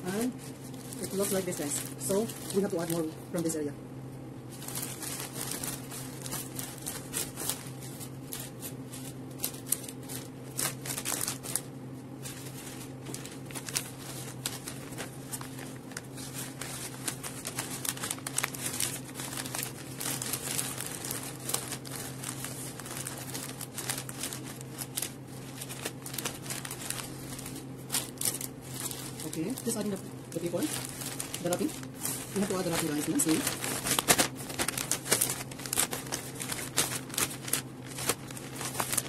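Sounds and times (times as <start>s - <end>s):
wrapping paper crinkling: 0.0s - 3.6s, 4.5s - 39.0s
steady low hum: 0.0s - 39.0s.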